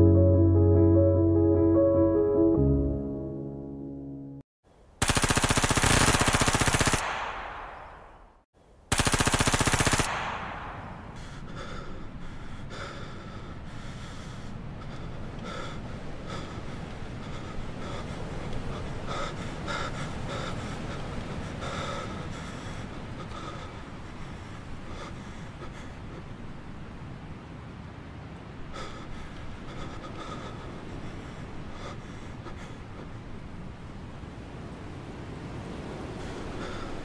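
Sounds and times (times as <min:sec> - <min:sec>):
automatic gunfire: 0:05.0 - 0:07.9, 0:08.9 - 0:10.8.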